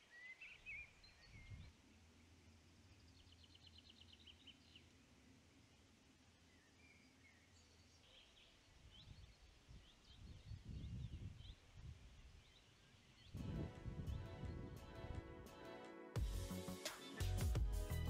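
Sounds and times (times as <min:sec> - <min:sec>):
low rumbling: 0:13.4 - 0:15.2.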